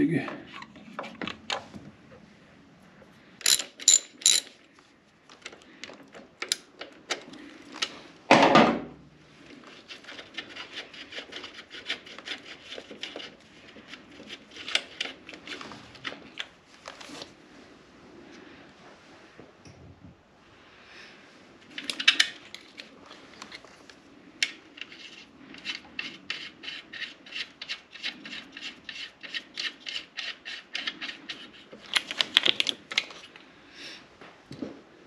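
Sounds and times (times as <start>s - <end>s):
metal tools clinking: 3.4s - 4.6s.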